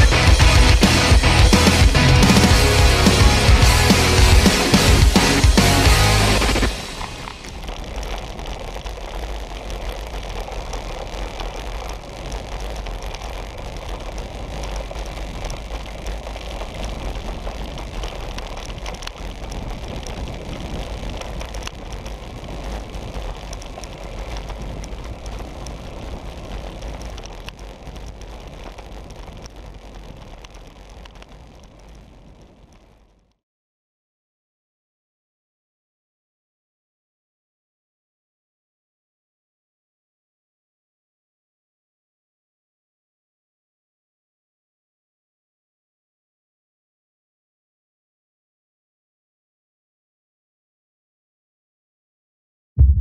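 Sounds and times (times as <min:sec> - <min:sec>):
bicycle tyres rolling on tarmac: 0:00.0 - 0:33.4
wind on microphone: 0:14.2 - 0:27.2, 0:52.8 - 0:53.0.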